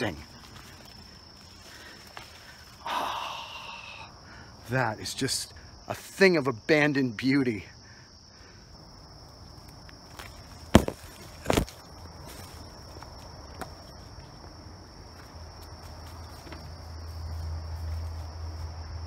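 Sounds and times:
footsteps through undergrowth: 0:00.0 - 0:02.8, 0:09.4 - 0:19.0
high-pitched insect chorus: 0:00.0 - 0:19.0
loud thumps: 0:10.7 - 0:11.7.

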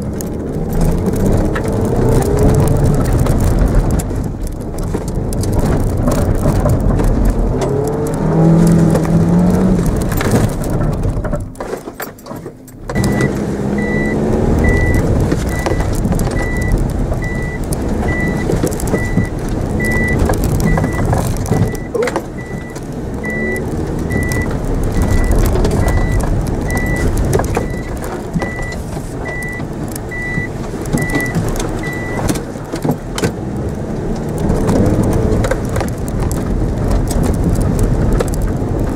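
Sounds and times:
car engine revving: 0:00.0 - 0:11.6, 0:12.5 - 0:38.9
high electronic beeps: 0:12.9 - 0:32.2.

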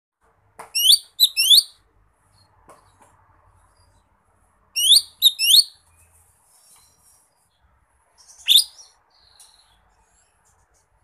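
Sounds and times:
bird whistling rising notes: 0:04.8 - 0:05.8.

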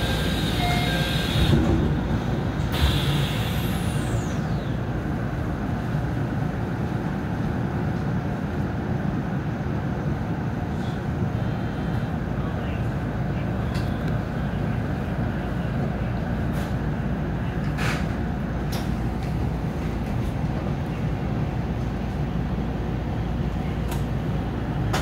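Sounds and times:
train equipment humming: 0:00.0 - 0:10.5
high whine falling in pitch: 0:02.8 - 0:05.8.

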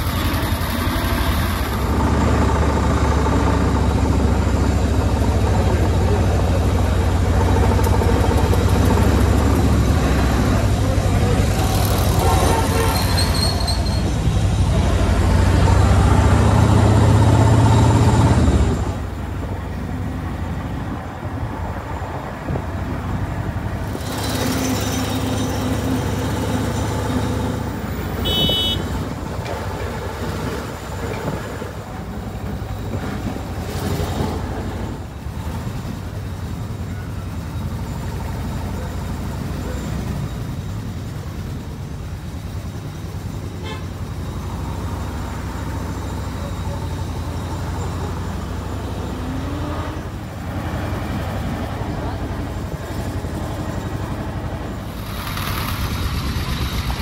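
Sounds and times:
old car engine and road noise: 0:00.0 - 0:57.0
high-pitched car horn toot: 0:28.2 - 0:29.0, 0:43.6 - 0:43.9.

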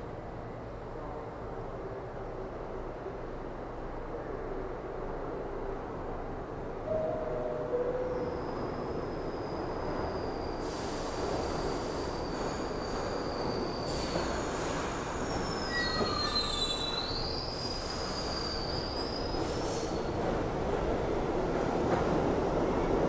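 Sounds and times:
subway train rumbling: 0:00.0 - 0:23.0
train wheels squealing: 0:07.8 - 0:20.2.

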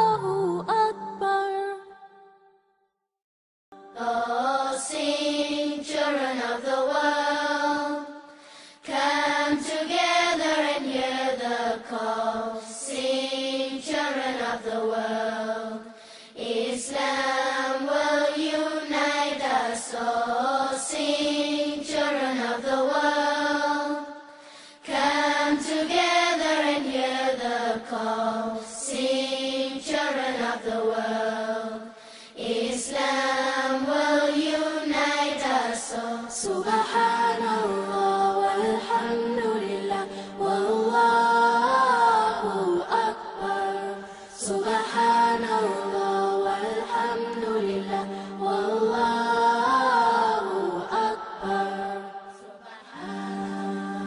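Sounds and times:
solo voice chanting: 0:36.1 - 0:54.0.

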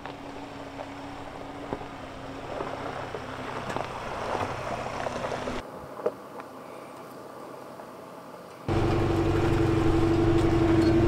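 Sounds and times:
pickup engine running at low revs: 0:08.7 - 0:11.0.

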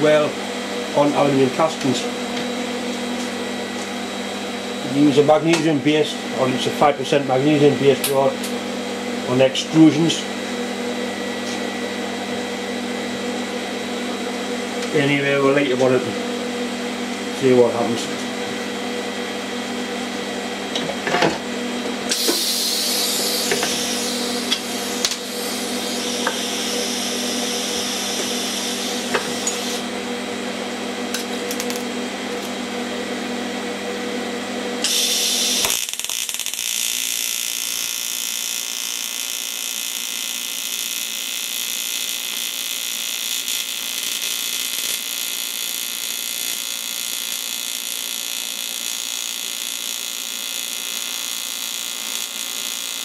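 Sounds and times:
workshop hum: 0:00.0 - 0:53.0
welding arc buzzing: 0:22.0 - 0:30.0, 0:31.1 - 0:32.7, 0:34.8 - 0:53.0.

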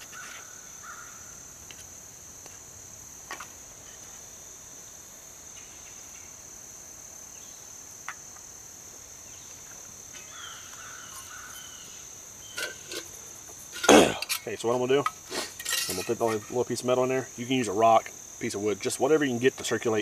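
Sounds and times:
insects chirring: 0:00.0 - 0:20.0
metal pot knocks and clinks: 0:15.6 - 0:16.5.

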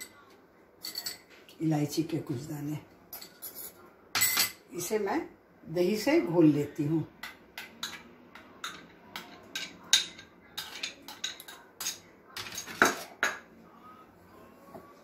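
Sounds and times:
spoon clinking on glass bowl: 0:00.8 - 0:01.3.

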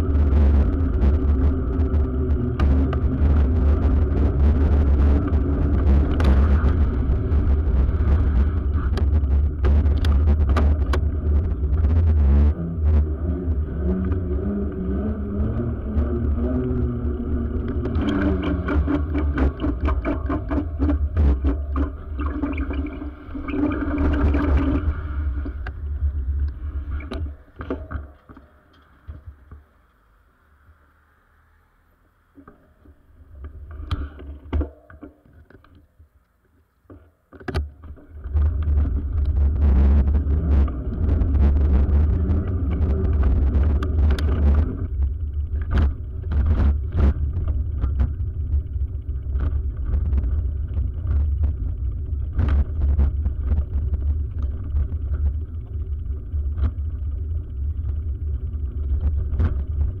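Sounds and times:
bicycle rattling over brick road: 0:37.7 - 1:00.0.

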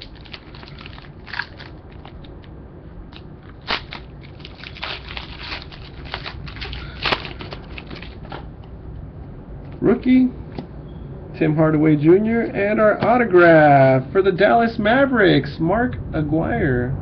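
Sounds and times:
trading cards crinkling and clicking: 0:00.0 - 0:08.5.

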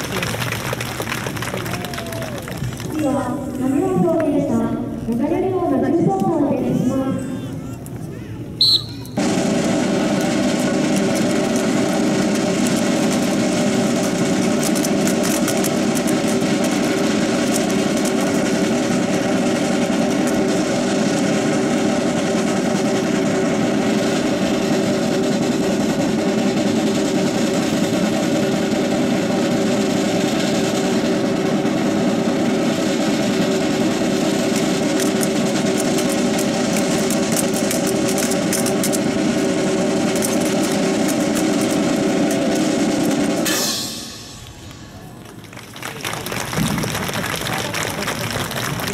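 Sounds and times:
engine droning: 0:08.6 - 0:48.9
sharp clacks: 0:34.2 - 0:48.9.

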